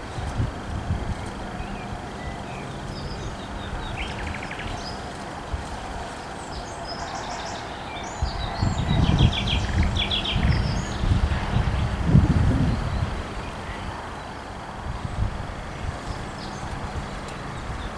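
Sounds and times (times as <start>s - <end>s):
outdoor background noise: 0.0s - 17.9s
small birds chirping: 1.1s - 12.0s, 15.7s - 17.9s.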